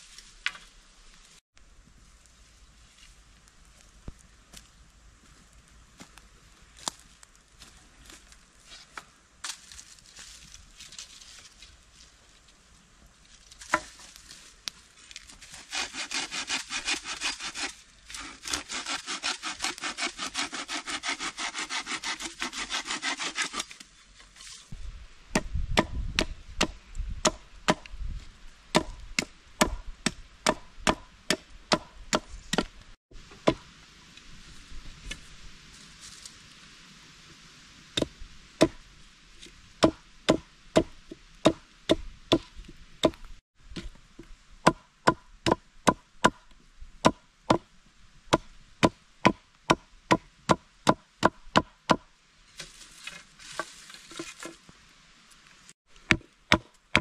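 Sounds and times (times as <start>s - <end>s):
hand saw cutting wood: 15.4s - 23.8s
chopping strikes on wood: 25.3s - 28.0s, 28.7s - 32.7s, 33.4s - 33.6s, 38.0s - 38.8s, 39.8s - 43.9s, 44.6s - 47.7s, 48.3s - 52.1s, 56.0s - 57.0s.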